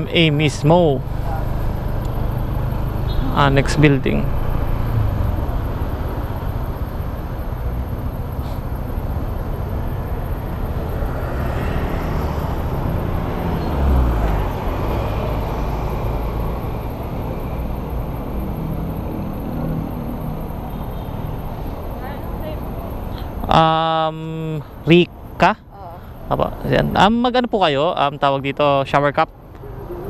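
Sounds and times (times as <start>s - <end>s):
motorcycle engine running: 0.0s - 15.6s.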